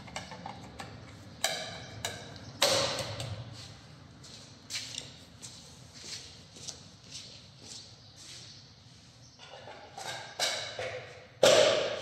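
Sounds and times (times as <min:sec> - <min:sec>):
sharp metallic clicks and knocks: 0:00.0 - 0:03.4.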